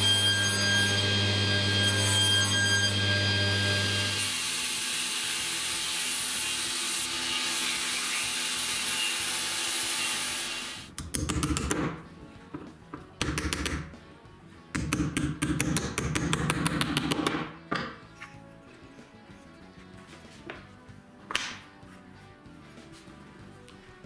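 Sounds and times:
belt sander running: 0:00.6 - 0:02.1, 0:02.8 - 0:04.3
background music: 0:10.9 - 0:24.0.

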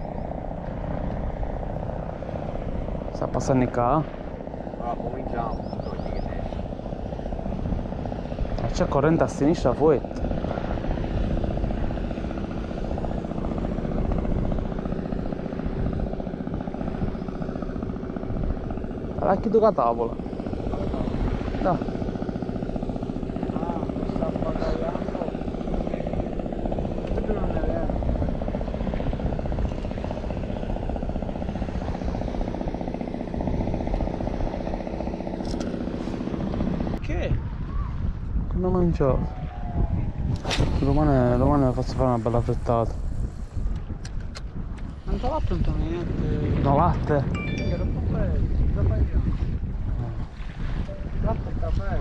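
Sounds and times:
engine running: 0:00.0 - 0:52.0
pulsing motor drone: 0:00.0 - 0:52.0
sharp clicks: 0:35.4 - 0:35.8
held tones: 0:47.3 - 0:48.1.

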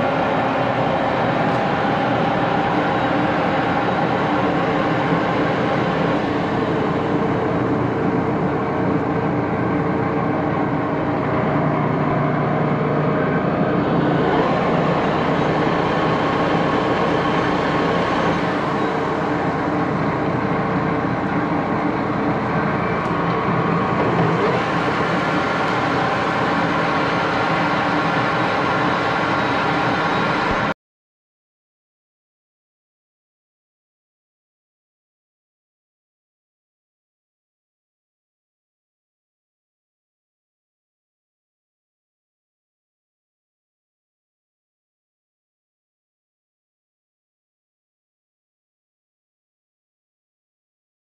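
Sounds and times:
lathe running with mechanical hum: 0:00.0 - 0:30.7.

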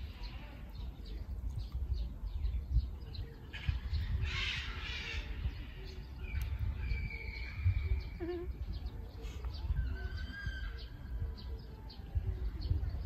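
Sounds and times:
small birds chirping: 0:00.0 - 0:13.0
wind rumbling on microphone: 0:00.0 - 0:13.0.

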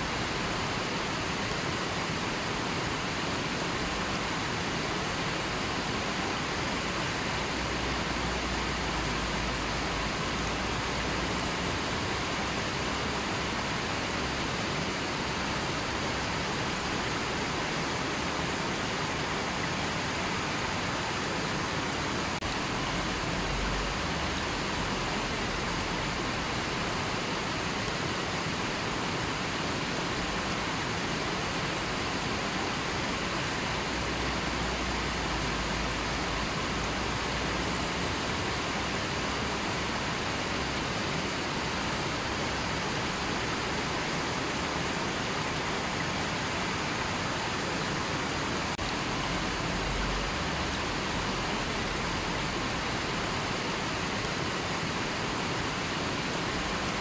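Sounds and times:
river water rushing over rocks: 0:00.0 - 0:57.0.

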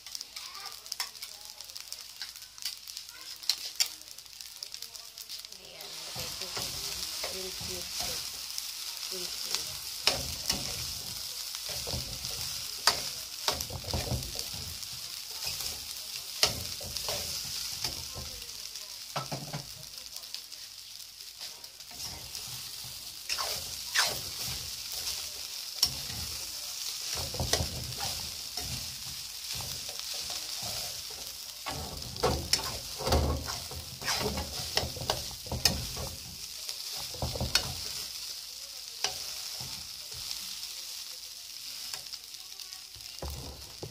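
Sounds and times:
food sizzling in a wok: 0:00.0 - 0:43.9
metal spatula scraping a pan: 0:05.4 - 0:18.3, 0:21.4 - 0:38.2, 0:39.0 - 0:40.5.

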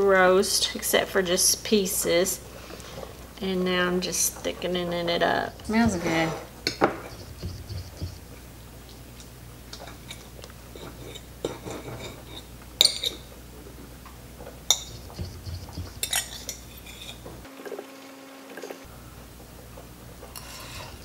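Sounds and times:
steady low hum: 0:00.0 - 0:17.5, 0:18.8 - 0:21.0
fork clinking on ceramic plate: 0:14.7 - 0:17.2.

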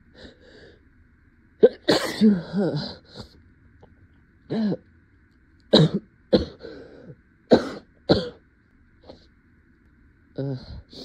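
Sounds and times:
woman clearing throat: 0:01.6 - 0:03.0
woman coughing: 0:01.6 - 0:03.0, 0:05.7 - 0:06.6, 0:07.5 - 0:08.4.

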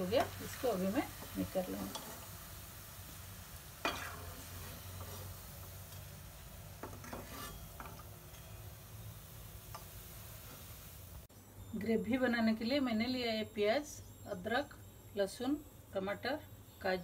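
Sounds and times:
food sizzling in hot oil: 0:00.0 - 0:11.3
metal spoon scraping a pan: 0:00.1 - 0:02.4, 0:03.8 - 0:06.2, 0:06.8 - 0:08.6.

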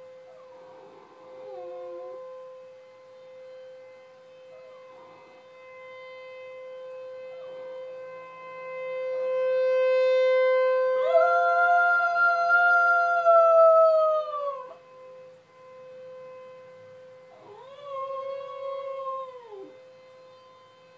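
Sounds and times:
warning siren steady tone: 0:00.0 - 0:20.9
dog howling: 0:00.3 - 0:02.4, 0:04.5 - 0:05.5, 0:11.0 - 0:14.8, 0:17.4 - 0:19.8.

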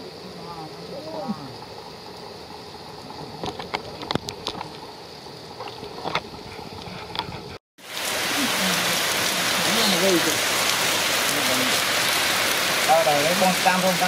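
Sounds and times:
steady rain: 0:00.0 - 0:06.2, 0:07.8 - 0:14.0
sharp drips: 0:07.9 - 0:14.0.

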